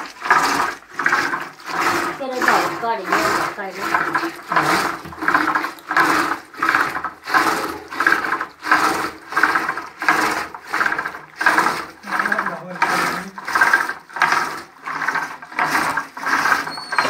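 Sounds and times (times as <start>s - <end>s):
churning stick sloshing curd: 0.0s - 17.0s.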